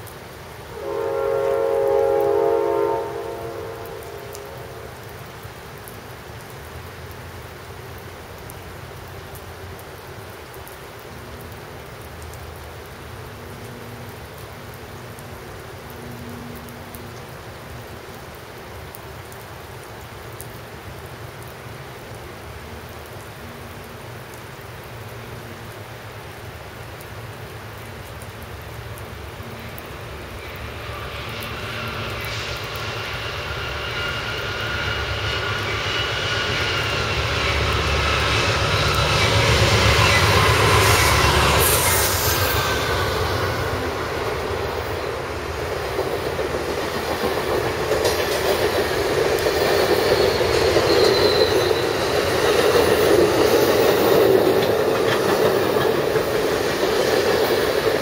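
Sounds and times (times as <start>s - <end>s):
passenger train approaching: 0.0s - 58.0s
steady rain hiss: 0.0s - 58.0s.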